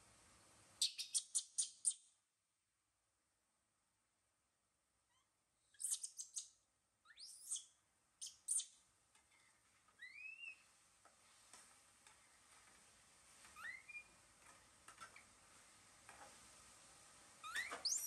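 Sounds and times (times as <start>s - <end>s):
squeaky animal chirping calls: 5.1s - 6.5s, 7.1s - 8.7s, 13.6s - 14.1s, 17.4s - 18.0s.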